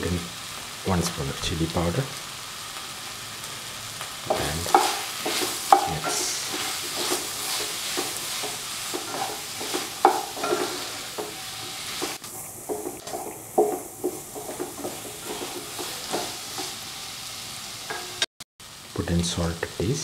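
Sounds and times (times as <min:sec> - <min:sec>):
frying sizzle: 0:00.0 - 0:20.0
utensil scraping a metal pot: 0:04.3 - 0:16.8.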